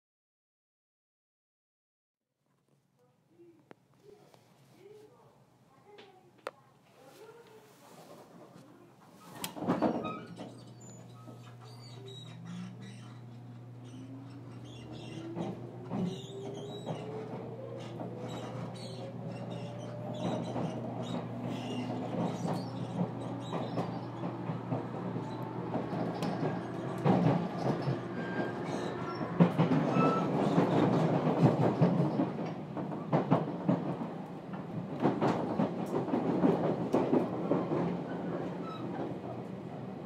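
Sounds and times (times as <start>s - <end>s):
train wheels clicking over rail joints: 12.4s - 39.4s.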